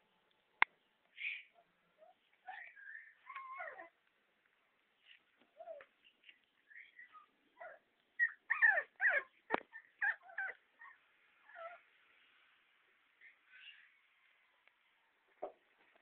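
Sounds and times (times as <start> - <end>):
puppies yipping and whimpering: 2.0 - 4.0, 6.8 - 11.8.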